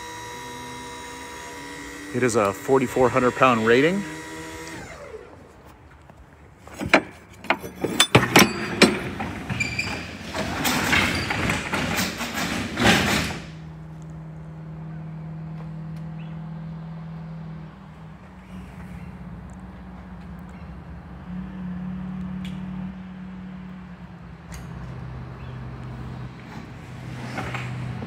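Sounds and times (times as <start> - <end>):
sharp knocks and clanks: 6.7 - 13.5.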